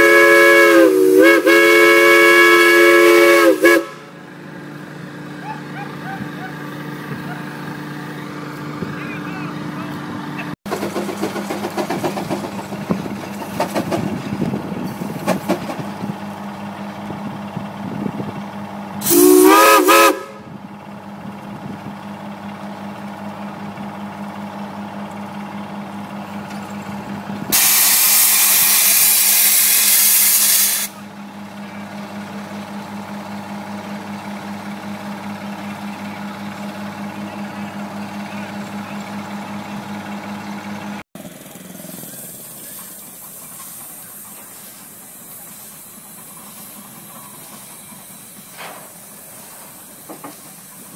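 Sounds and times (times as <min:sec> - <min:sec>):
steam whistle toot: 0:00.0 - 0:04.2, 0:19.0 - 0:20.5, 0:27.5 - 0:31.0
steam venting hiss: 0:19.0 - 0:20.2, 0:27.5 - 0:31.0, 0:41.8 - 0:50.9.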